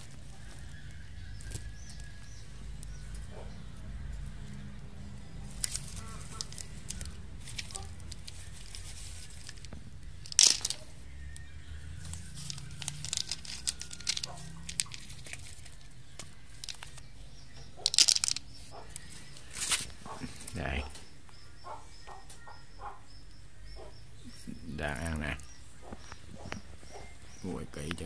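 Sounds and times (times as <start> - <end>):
dry leaves rustling and crackling: 0.0 - 17.1, 17.8 - 20.8.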